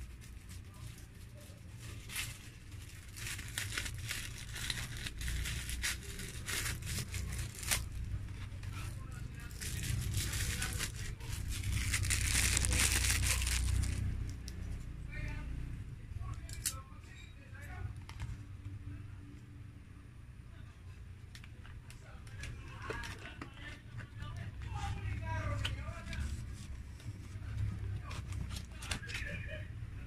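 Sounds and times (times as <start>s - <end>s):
plastic packaging crinkling: 0.0s - 8.1s, 9.1s - 14.1s
plastic packaging tearing: 1.8s - 8.0s, 9.4s - 14.1s.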